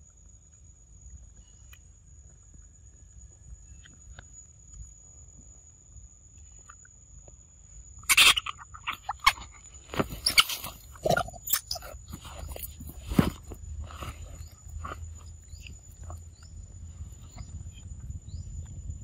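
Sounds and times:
monkeys squeaky calls: 8.1s - 9.4s, 10.2s - 11.9s.

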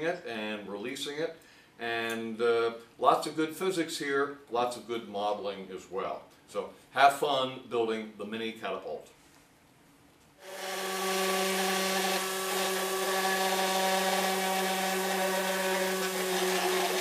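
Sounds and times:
small electric motor and fan: 10.4s - 17.0s.

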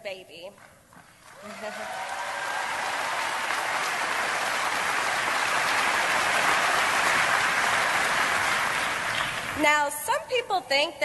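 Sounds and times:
audience applauding: 1.2s - 9.6s.

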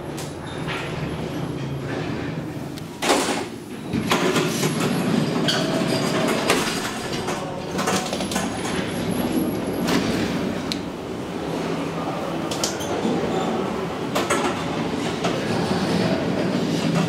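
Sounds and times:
elevator door clunks: 0.0s - 11.1s
elevator car rumbling: 0.0s - 17.0s.

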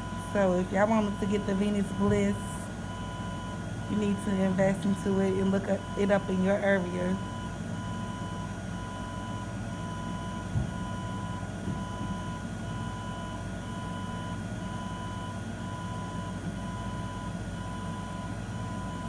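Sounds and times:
machine humming: 0.0s - 8.2s.

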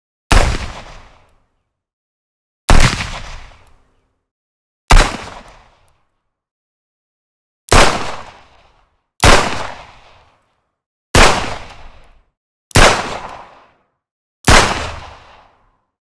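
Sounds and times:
revolver gunshots: 0.3s - 1.2s, 2.7s - 3.6s, 4.9s - 5.6s, 7.7s - 8.5s, 9.2s - 10.1s, 11.2s - 11.9s, 12.8s - 13.6s, 14.5s - 15.4s.

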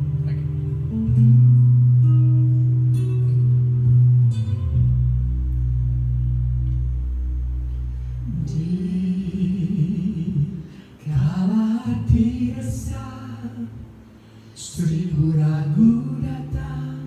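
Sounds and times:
backing music track: 0.0s - 14.0s
man and woman singing a duet: 8.3s - 13.9s, 14.6s - 17.0s.

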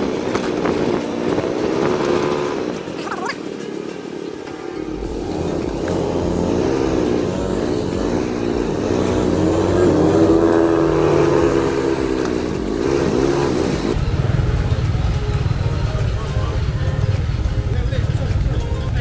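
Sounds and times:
small motorcycle engine: 0.0s - 19.0s.

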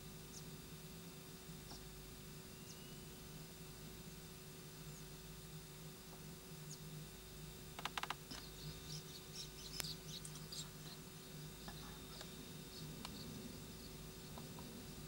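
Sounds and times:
low hum: 1.6s - 15.0s
sharp clicks: 7.8s - 8.4s.

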